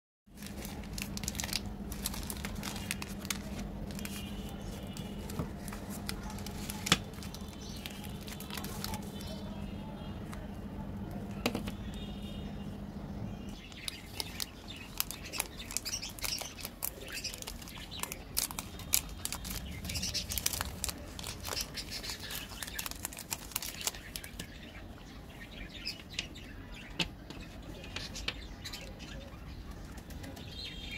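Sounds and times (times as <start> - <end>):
wrappers crinkling and tearing: 0.3 - 9.4, 13.6 - 24.6.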